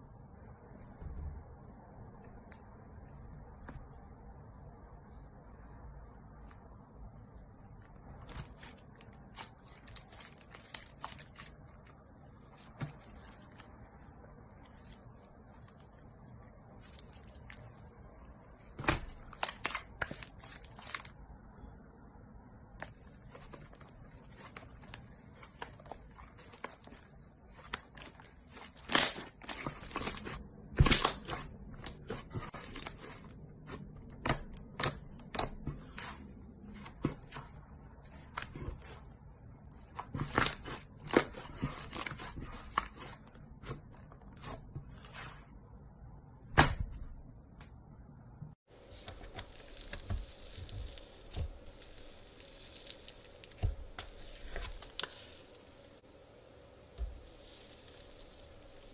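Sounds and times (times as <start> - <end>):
slime popping and crackling: 49.0 - 55.7, 57.0 - 58.9.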